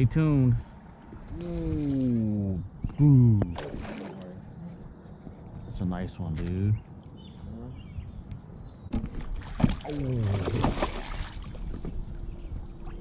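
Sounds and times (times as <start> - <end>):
fish thrashing and splashing: 9.2 - 11.6.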